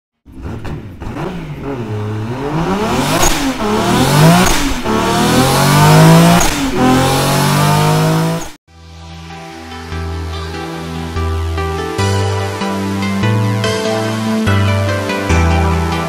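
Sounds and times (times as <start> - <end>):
car engine revving: 0.3 - 8.6.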